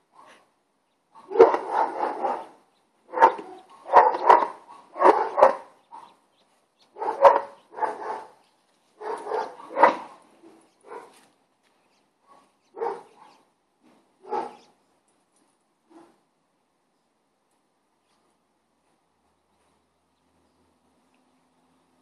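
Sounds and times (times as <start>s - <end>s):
dog play-barking: 1.2s - 6.2s, 7.0s - 8.4s, 9.0s - 11.2s, 12.3s - 13.4s, 14.2s - 14.7s.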